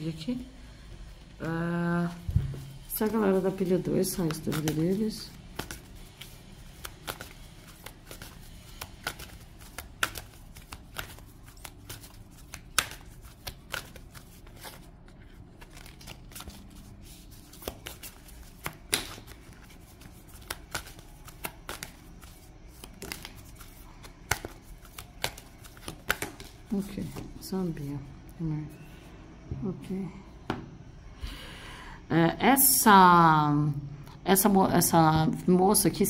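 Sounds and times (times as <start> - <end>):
cards being shuffled: 2.1 - 27.5.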